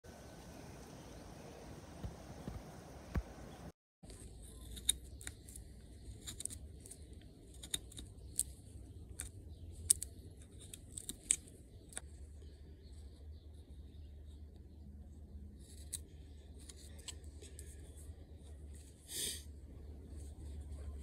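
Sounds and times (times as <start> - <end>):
low steady rumble: 0.1 - 21.0
knife carving wood: 4.1 - 13.2, 15.5 - 19.1.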